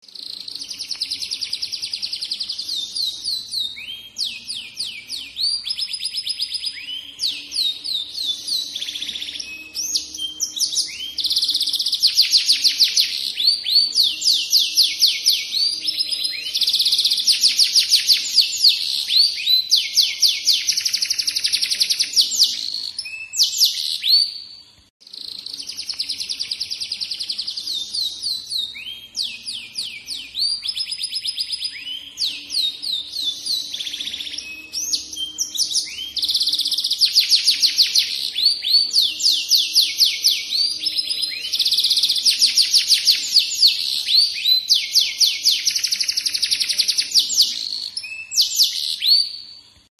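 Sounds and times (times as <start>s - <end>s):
canary singing: 0.0s - 49.9s.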